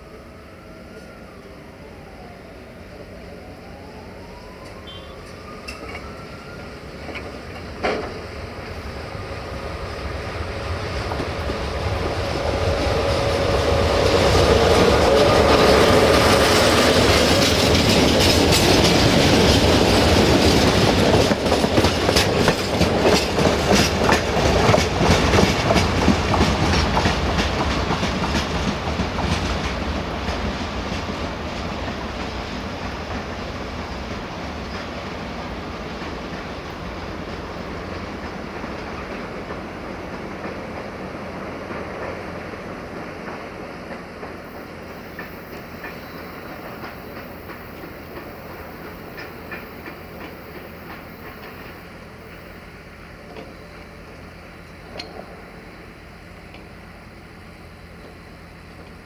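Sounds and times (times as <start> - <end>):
diesel locomotive passing: 0.0 - 59.0
train wheels clickety-clack: 7.0 - 8.9, 10.0 - 52.5.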